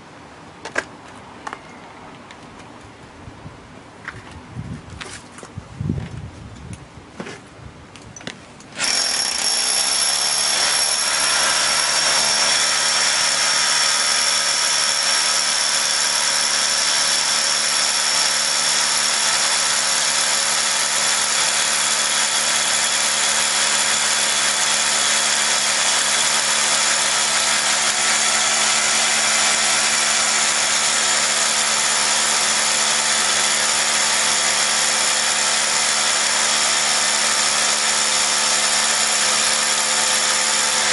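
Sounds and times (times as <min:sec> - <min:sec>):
rotary hammer drilling concrete: 0:08.8 - 0:40.9.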